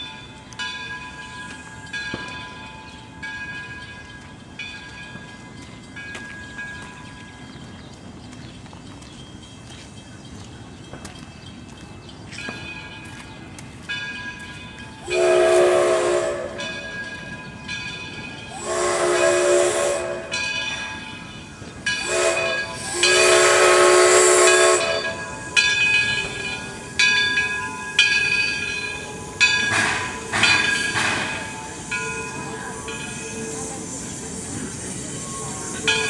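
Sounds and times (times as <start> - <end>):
locomotive bell ringing: 0.0 - 8.1, 9.1 - 36.0
steam locomotive whistle: 15.0 - 17.3, 18.4 - 20.9, 22.0 - 27.0
steam hissing: 22.0 - 36.0.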